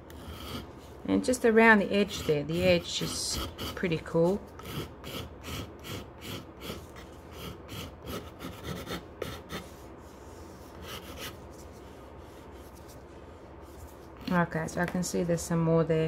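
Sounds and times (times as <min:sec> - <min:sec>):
file scraping wood: 0:00.1 - 0:00.9, 0:01.8 - 0:09.8.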